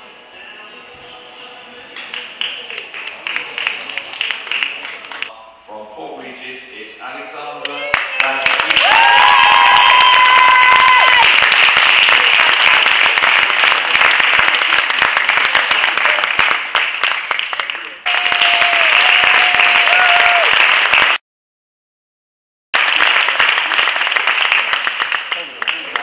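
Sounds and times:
audience applauding: 0:02.4 - 0:05.3, 0:07.6 - 0:21.2, 0:22.8 - 0:26.0.

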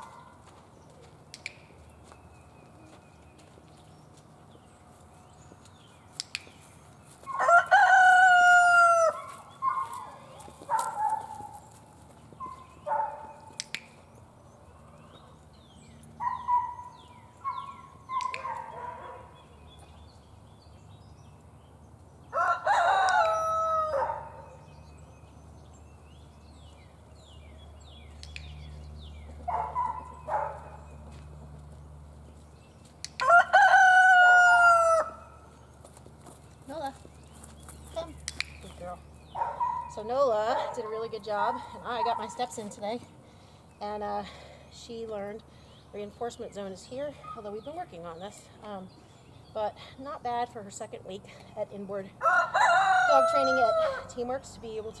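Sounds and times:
roosters crowing: 0:07.3 - 0:10.9, 0:22.2 - 0:24.8, 0:33.1 - 0:35.6, 0:52.2 - 0:54.3.

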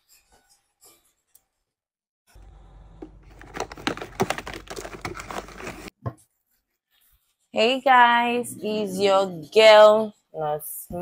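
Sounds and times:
low steady hum: 0:02.3 - 0:05.9.

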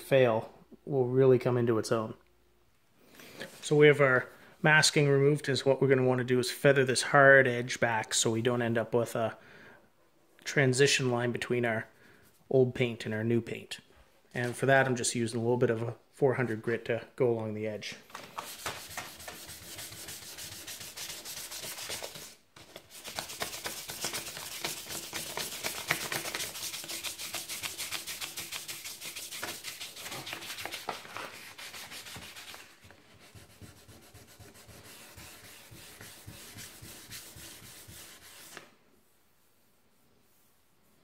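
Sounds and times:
sandpaper rubbing on metal: 0:18.4 - 0:38.6.

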